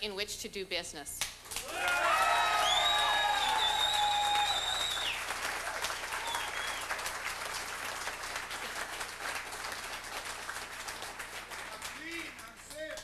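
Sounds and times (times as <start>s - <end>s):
crowd applauding: 1.5s - 13.0s.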